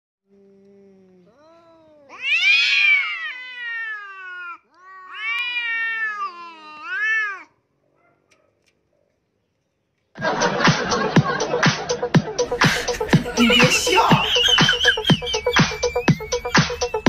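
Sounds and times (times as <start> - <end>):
cat yowling: 1.3 - 7.6.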